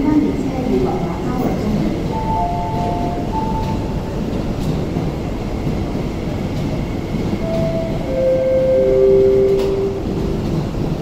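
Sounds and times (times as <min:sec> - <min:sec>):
electric train rumbling: 0:00.0 - 0:11.0
clear steady tones: 0:02.1 - 0:04.0, 0:07.4 - 0:10.1.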